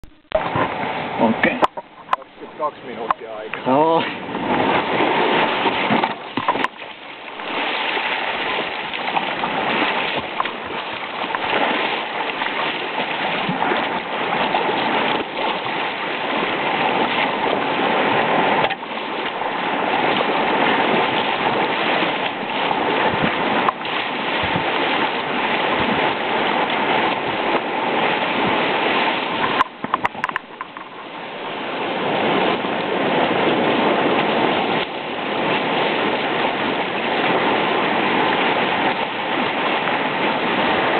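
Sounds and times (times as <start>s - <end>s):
rushing whitewater: 0.0s - 40.9s.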